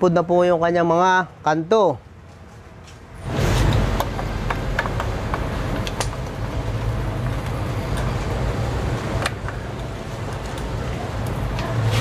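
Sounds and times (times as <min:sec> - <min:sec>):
engine rumble: 0:02.5 - 0:12.0.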